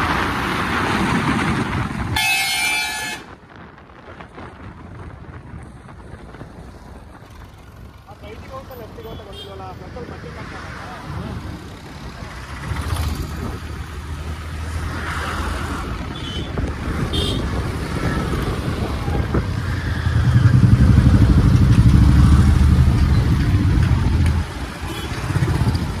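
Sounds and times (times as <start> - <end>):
street traffic: 0.0 - 26.0
engine running close by: 18.0 - 26.0.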